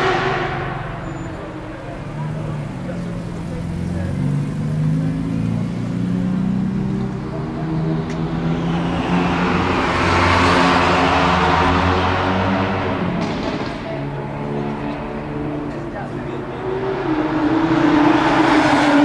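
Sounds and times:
rushing noise: 0.0 - 1.5, 8.2 - 13.6
car engine idling: 0.0 - 16.6.

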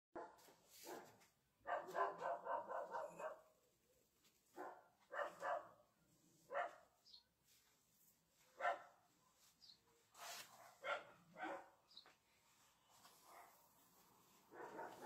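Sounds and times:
dog barking: 0.2 - 3.6, 4.5 - 5.9, 6.5 - 7.0, 8.6 - 9.0, 10.5 - 11.8, 13.2 - 13.7, 14.5 - 15.0.

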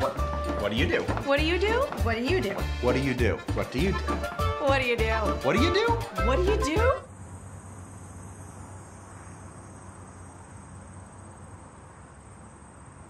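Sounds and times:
crickets trilling: 7.0 - 13.0.

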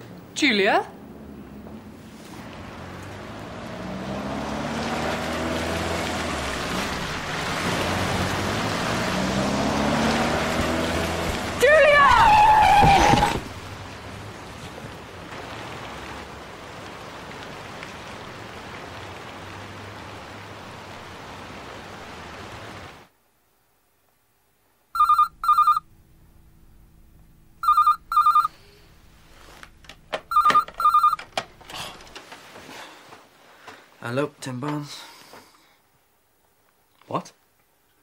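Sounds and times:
telephone ringing: 25.0 - 25.9, 27.6 - 28.6, 30.1 - 31.4.

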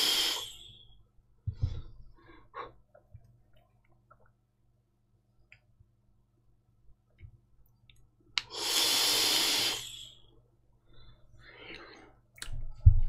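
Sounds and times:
breathy hiss of vaping: 0.0 - 1.0, 8.4 - 10.3.

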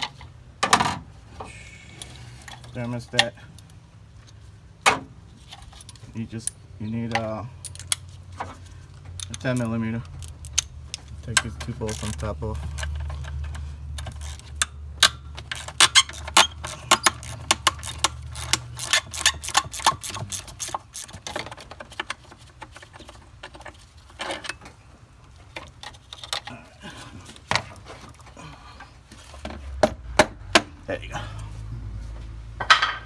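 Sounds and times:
hand ratchet clicking: 9.2 - 22.2.

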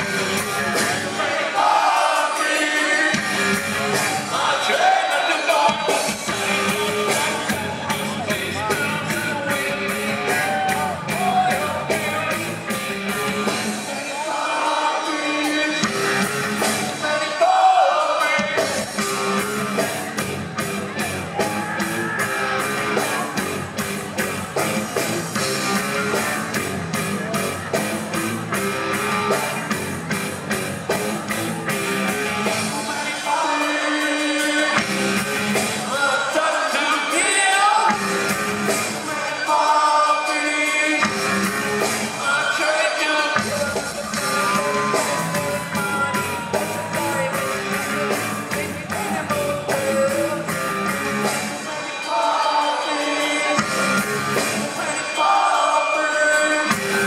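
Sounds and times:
man singing: 0.0 - 20.1, 32.3 - 57.0
live rock band playing: 0.0 - 57.0.

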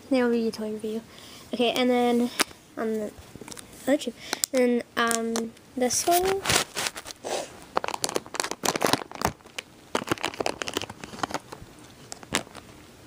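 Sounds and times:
foil packaging crinkling: 6.0 - 12.6.

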